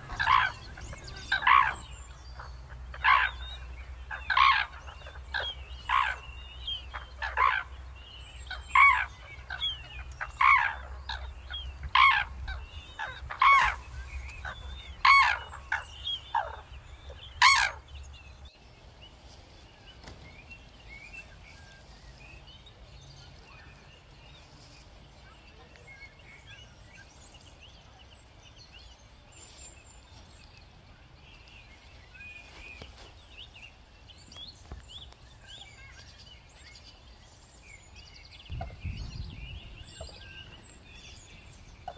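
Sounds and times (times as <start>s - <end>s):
crane calling loudly: 0.0s - 17.9s
faint small birds chirping: 0.0s - 41.9s.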